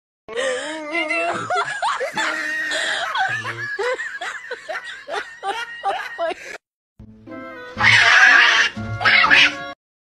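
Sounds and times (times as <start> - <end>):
high voice giggling: 0.8 - 4.0
music: 7.0 - 9.8.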